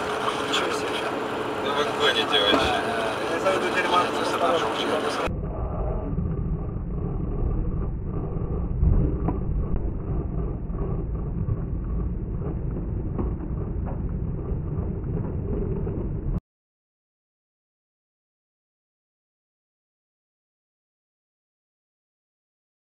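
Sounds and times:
slowed car road rumble: 0.0s - 16.4s.

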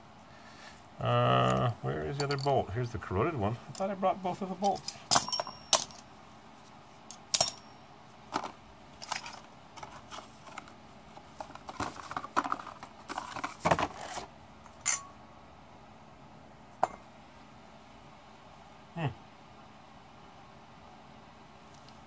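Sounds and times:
metal tools clinking on concrete: 2.1s - 2.6s, 4.6s - 6.0s, 7.1s - 7.8s, 14.8s - 15.2s.

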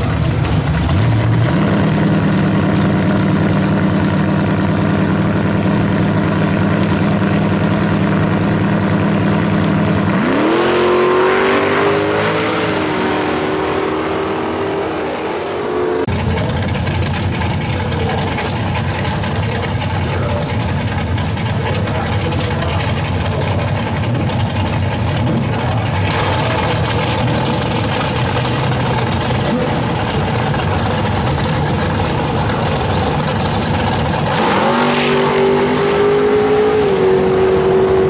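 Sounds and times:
drag car engine revving: 0.0s - 38.0s
second drag car engine: 0.0s - 38.0s.

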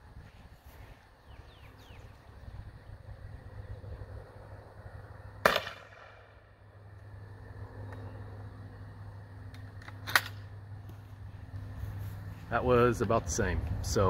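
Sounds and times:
launcher gunshot: 5.4s - 6.3s.

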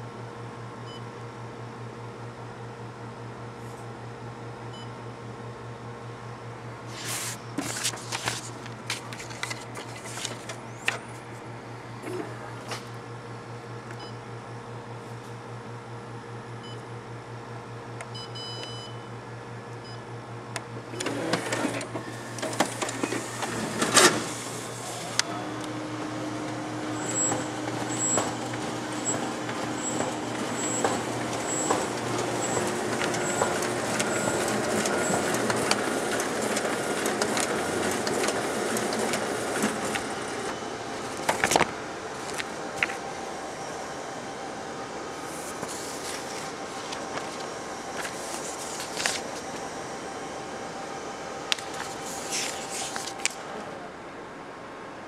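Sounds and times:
printing press running with clicks: 6.9s - 14.2s, 19.6s - 54.9s
machine humming: 20.9s - 54.1s.

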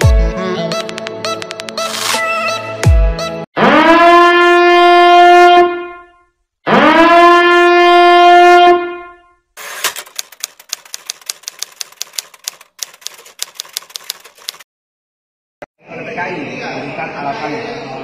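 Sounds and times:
typewriter key clicks: 9.8s - 14.6s.

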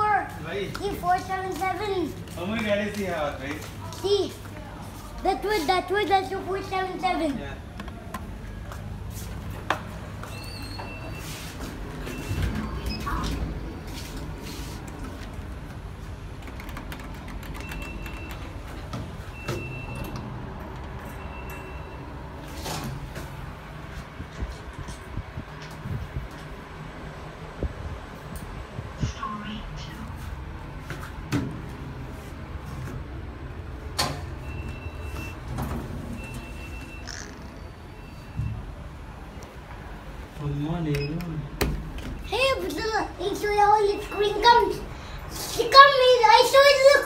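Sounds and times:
elevator low hum: 6.1s - 47.0s
faint high beep tone: 10.3s - 11.3s, 21.2s - 22.1s, 36.2s - 38.6s, 43.8s - 44.4s.

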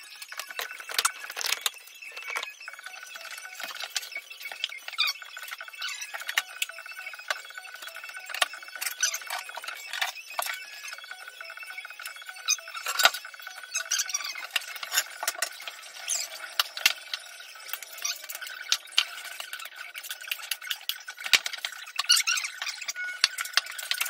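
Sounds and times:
tiles scraping and clinking: 0.1s - 2.5s, 12.8s - 13.2s.

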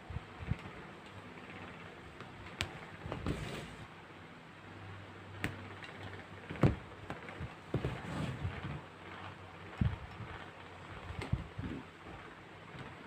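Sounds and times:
rustling of yarn and fabric: 6.2s - 13.0s.

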